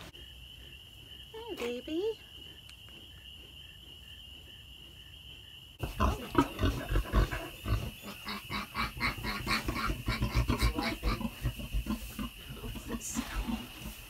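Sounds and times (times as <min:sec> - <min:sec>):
sow grunting: 0:05.8 - 0:14.0.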